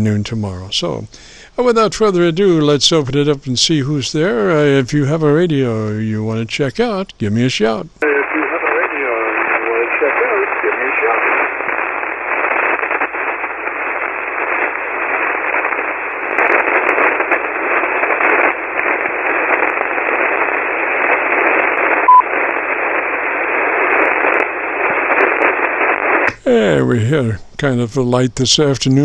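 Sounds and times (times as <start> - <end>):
radio static hiss: 0.0 - 29.0
short radio beep: 22.0 - 22.3.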